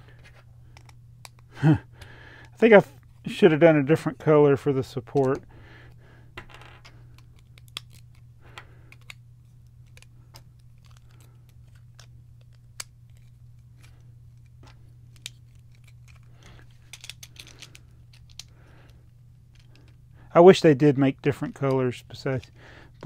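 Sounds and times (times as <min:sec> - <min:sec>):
faint low hum: 0:00.0 - 0:23.0
plastic bricks clicking: 0:14.6 - 0:18.5.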